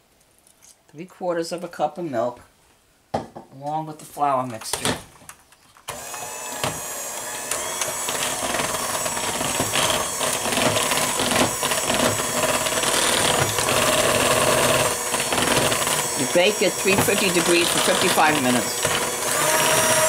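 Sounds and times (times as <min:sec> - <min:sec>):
electric hand mixer running: 0:05.9 - 0:20.0.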